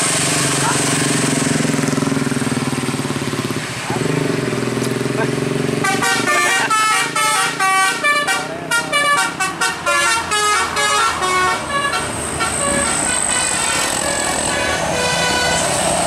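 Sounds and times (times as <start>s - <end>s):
musical air horn playing a tune: 5.8s - 16.0s.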